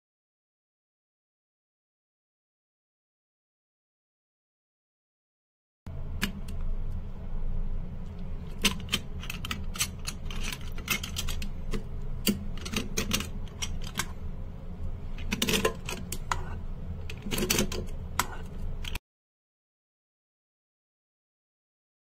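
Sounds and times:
steady low hum: 0:05.9 - 0:19.0.

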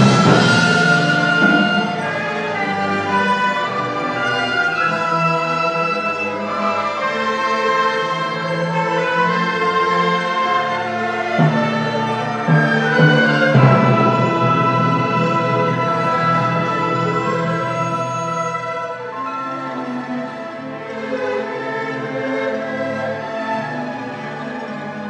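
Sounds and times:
orchestra playing sustained chords: 0:00.0 - 0:25.0.

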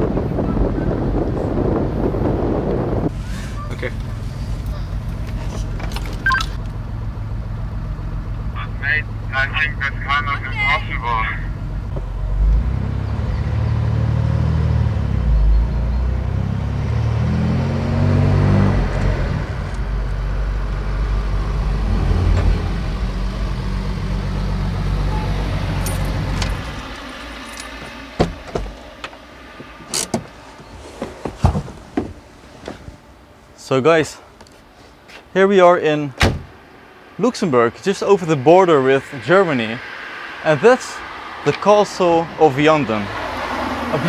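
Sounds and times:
car engine running: 0:01.6 - 0:13.0, 0:18.8 - 0:33.4.

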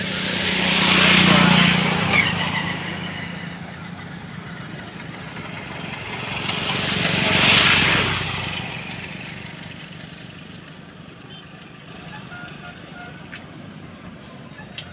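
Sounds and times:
vehicle engine passing by: 0:00.0 - 0:10.7.

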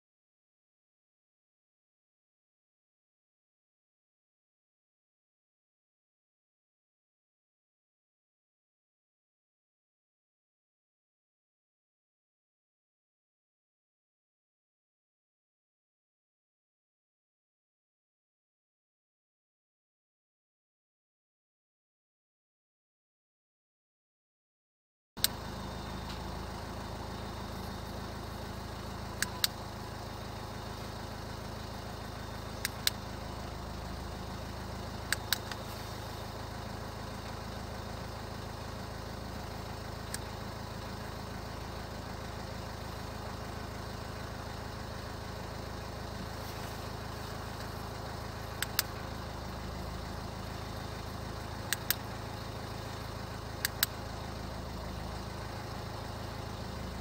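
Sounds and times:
car engine idling: 0:25.2 - 0:57.0
sharp clicks: 0:29.2 - 0:29.6, 0:32.6 - 0:33.1, 0:35.0 - 0:35.7, 0:48.5 - 0:49.1, 0:51.6 - 0:52.1, 0:53.6 - 0:54.0.

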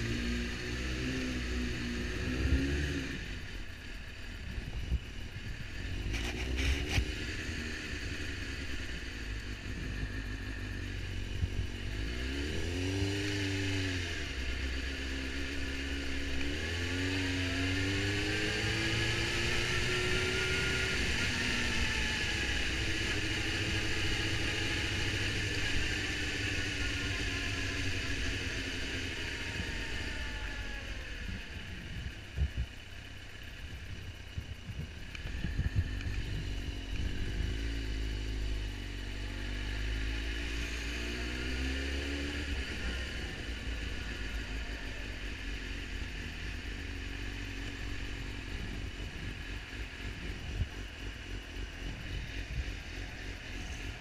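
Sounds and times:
motorcycle engine accelerating: 0:00.0 - 0:54.0
wind noise on microphone: 0:31.7 - 0:32.8, 0:34.4 - 0:37.6.

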